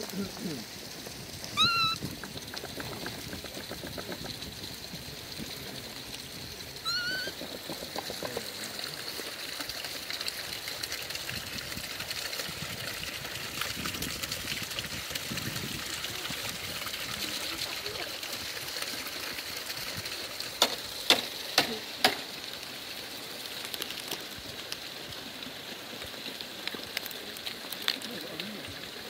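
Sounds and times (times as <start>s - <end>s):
water trickling and pouring: 0.0s - 29.0s
monkey cooing: 1.6s - 2.0s, 6.8s - 8.5s.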